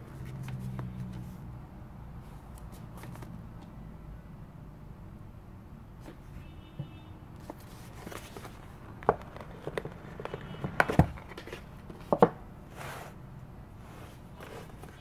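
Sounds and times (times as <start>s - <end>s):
knocks and taps on cardboard box: 9.0s - 12.4s.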